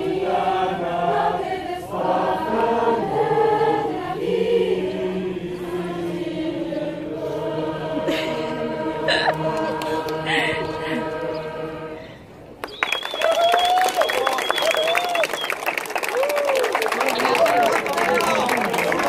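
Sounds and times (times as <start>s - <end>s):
choir singing: 0.0s - 12.3s.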